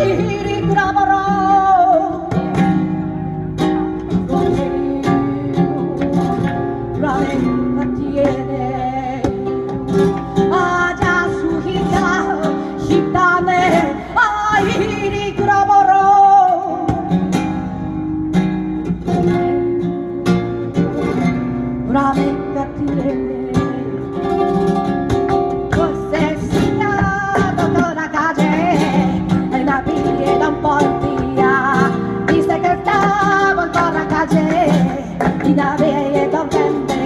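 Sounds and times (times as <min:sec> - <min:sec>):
acoustic flamenco guitar: 0:00.0 - 0:37.0
person singing: 0:04.2 - 0:09.8, 0:25.4 - 0:37.0.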